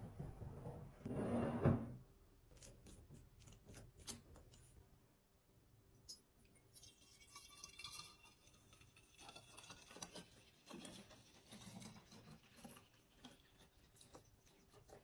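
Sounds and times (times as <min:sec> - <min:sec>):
liquid pouring into glass bottle: 0:06.5 - 0:12.2.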